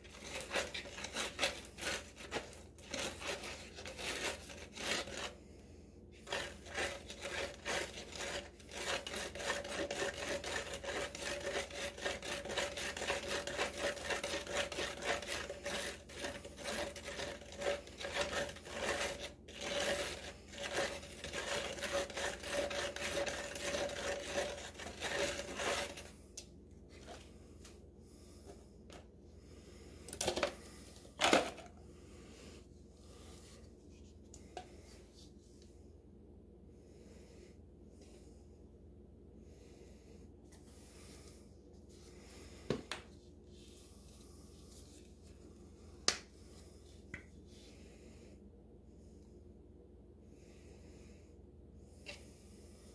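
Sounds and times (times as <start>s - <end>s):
scraping from stirring concrete mix: 0.0s - 5.4s, 6.2s - 26.2s.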